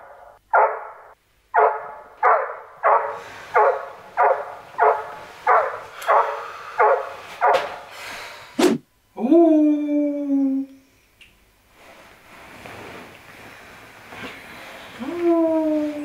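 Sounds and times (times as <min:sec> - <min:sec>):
dog barking: 0:00.0 - 0:07.9.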